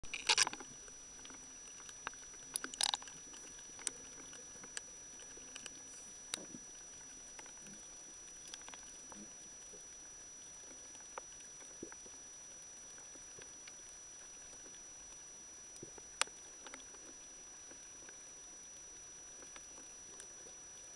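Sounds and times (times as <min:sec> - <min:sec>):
thin high whine: 0:00.0 - 0:20.9.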